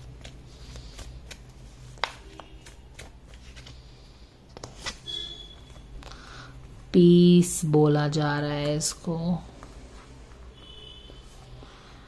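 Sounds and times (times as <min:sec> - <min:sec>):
cards shuffling: 0:00.0 - 0:05.1.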